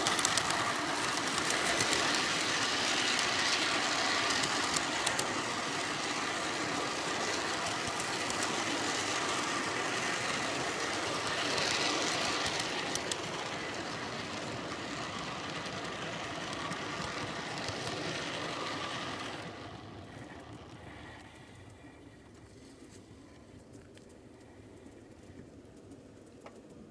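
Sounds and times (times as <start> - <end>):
train wheels rattling on track: 0.0 - 22.1.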